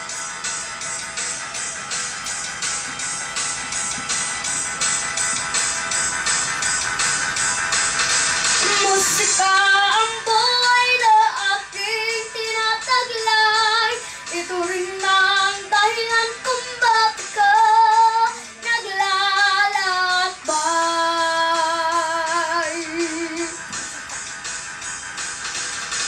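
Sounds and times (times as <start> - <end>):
backing music with beat: 0.0 - 26.0
girl singing into microphone: 8.6 - 23.6.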